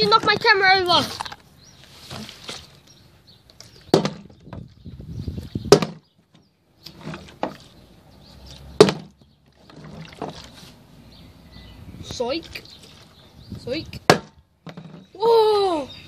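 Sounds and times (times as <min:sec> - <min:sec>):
plastic bottle knocking on wood: 0:03.9 - 0:04.7, 0:05.6 - 0:06.1, 0:08.8 - 0:09.2, 0:14.1 - 0:15.1.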